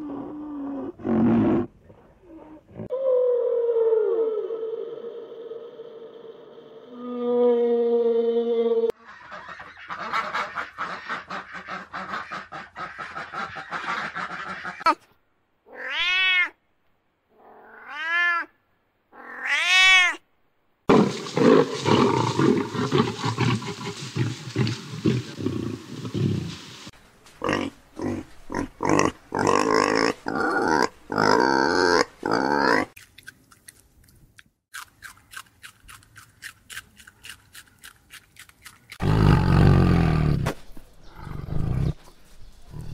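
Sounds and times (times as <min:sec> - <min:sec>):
lion growl: 0:39.0 - 0:40.4, 0:41.1 - 0:42.0.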